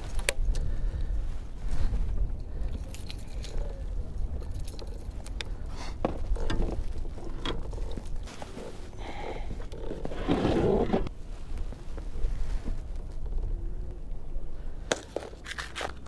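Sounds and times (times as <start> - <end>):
wind rumble on microphone: 0.0 - 16.0
gear clicks and knocks: 4.2 - 8.3.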